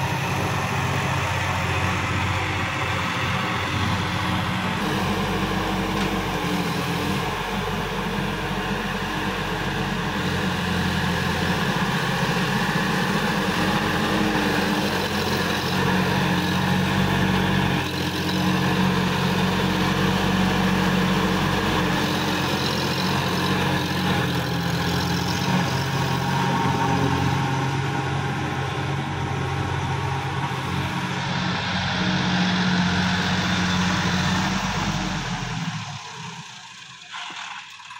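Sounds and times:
tractor diesel engine running: 0:00.0 - 0:37.9.

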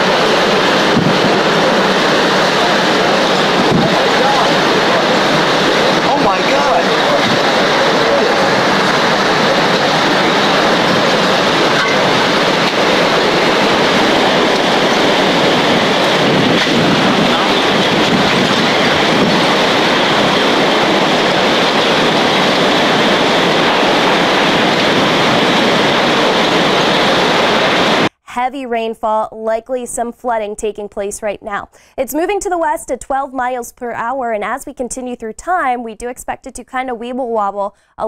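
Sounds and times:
hurricane wind and driving rain: 0:00.0 - 0:28.1.

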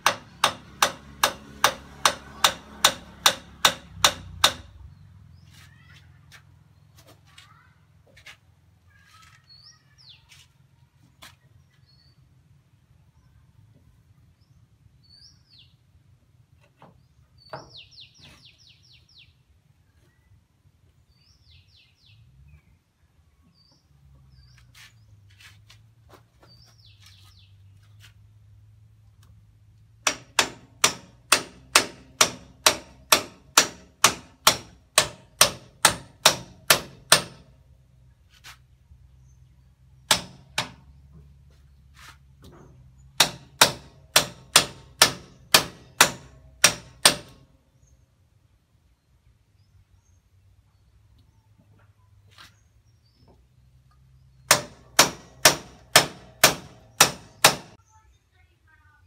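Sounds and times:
hammer blows ringing on steel: 0:00.0 - 0:04.7, 0:30.1 - 0:37.5, 0:40.1 - 0:40.9, 0:43.2 - 0:47.4, 0:54.5 - 0:57.8
bird chirps: 0:14.3 - 0:15.8, 0:17.0 - 0:20.4, 0:26.4 - 0:28.0.

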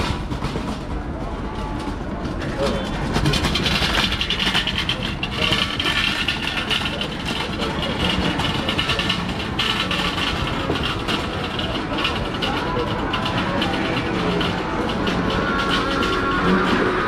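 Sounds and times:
murmur of voices: 0:00.0 - 0:17.0
traffic noise: 0:00.0 - 0:17.0.

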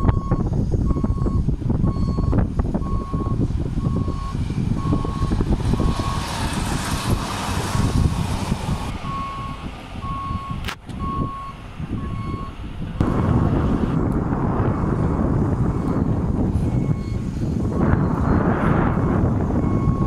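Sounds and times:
reversing alarm beeping: 0:00.0 - 0:06.4, 0:09.0 - 0:12.6, 0:15.8 - 0:20.0
rush of noise: 0:12.9 - 0:20.0.

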